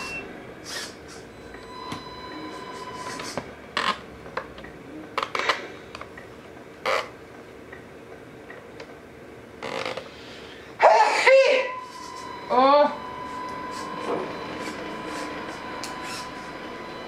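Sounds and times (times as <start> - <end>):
faint electronic hum: 0.0 - 17.0.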